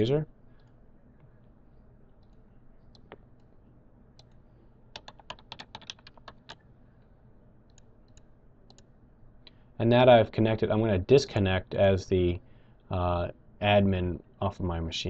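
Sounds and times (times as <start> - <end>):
keyboard typing: 2.2 - 3.5, 4.2 - 6.6.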